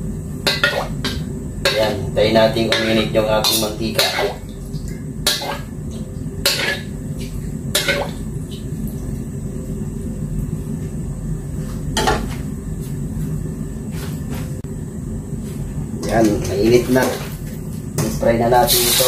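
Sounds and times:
steady low rumble: 0:00.0 - 0:18.7
metal ladle striking a wok: 0:00.5 - 0:01.9.

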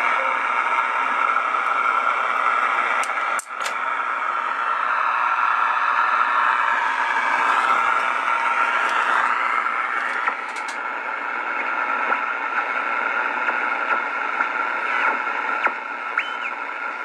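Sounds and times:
steady radio whistle: 0:00.0 - 0:10.4, 0:11.0 - 0:17.0
radio static hiss: 0:00.0 - 0:17.0
radio whistles sliding in pitch: 0:15.5 - 0:16.9.

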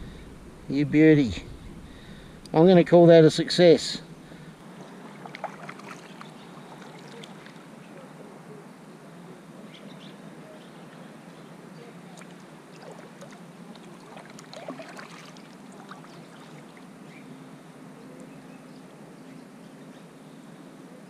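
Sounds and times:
steady low hum: 0:00.0 - 0:21.0
water lapping at hull: 0:04.4 - 0:07.6, 0:12.1 - 0:16.9
paddle splashing and dripping: 0:04.6 - 0:07.6, 0:12.1 - 0:16.8.

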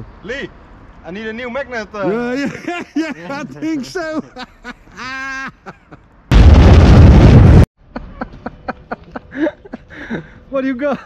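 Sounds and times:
loud explosion blast: 0:06.3 - 0:07.7.

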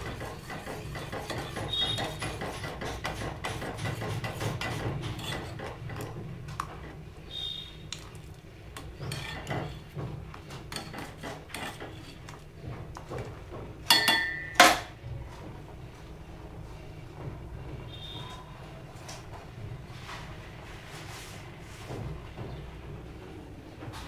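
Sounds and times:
metal spoon scraping a steel pot: 0:00.0 - 0:06.1, 0:09.0 - 0:09.9, 0:10.7 - 0:12.4
ringing metal clanks: 0:13.9 - 0:14.8.

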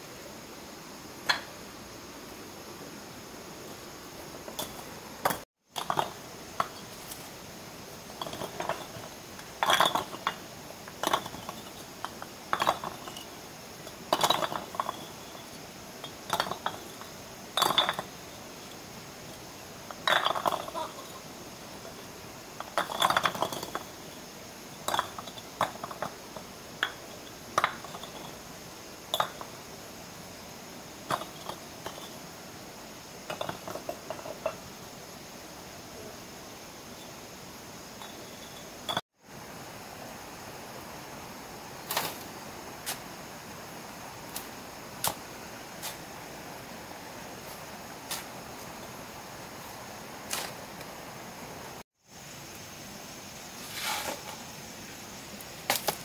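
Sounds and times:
hard clinks on brick: 0:08.2 - 0:13.3
tool scraping mortar: 0:53.6 - 0:54.4.

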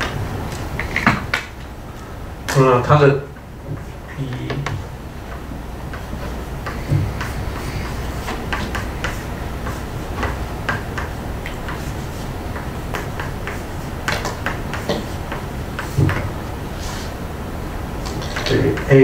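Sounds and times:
steady low hum: 0:00.0 - 0:19.0
chalk tapping on blackboard: 0:03.8 - 0:16.3.

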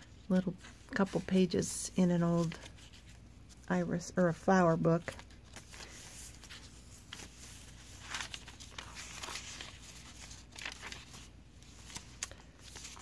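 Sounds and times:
paper rustling: 0:00.6 - 0:03.7, 0:05.0 - 0:13.0
pages being turned: 0:05.0 - 0:13.0.

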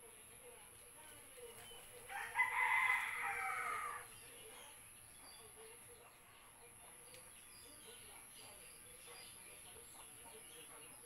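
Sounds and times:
rooster crowing: 0:02.1 - 0:04.0.

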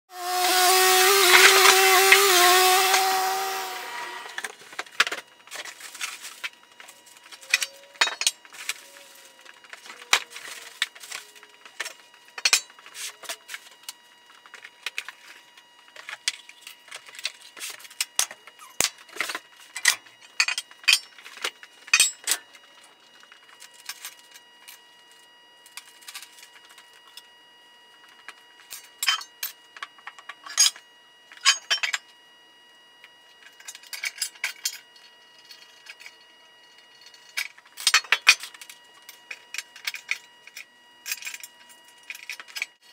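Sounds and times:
metal parts clinking on concrete: 0:19.8 - 0:21.2, 0:31.4 - 0:32.0.

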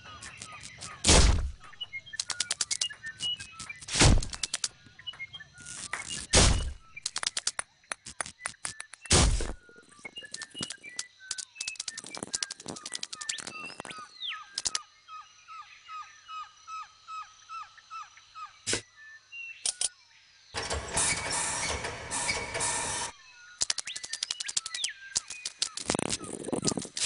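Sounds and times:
rapid sharp clicks: 0:02.1 - 0:04.7, 0:07.0 - 0:09.1, 0:10.2 - 0:13.8, 0:14.6 - 0:14.8, 0:22.4 - 0:27.0.

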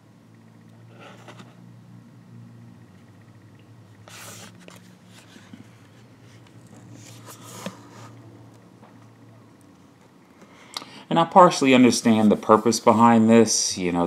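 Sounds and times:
steady low hum: 0:00.0 - 0:14.0
cardboard rubbing and rustling: 0:04.1 - 0:08.1.

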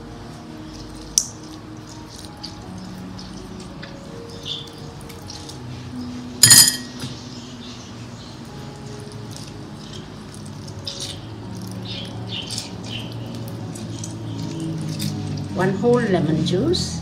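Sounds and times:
sharp clink: 0:06.4 - 0:07.1.

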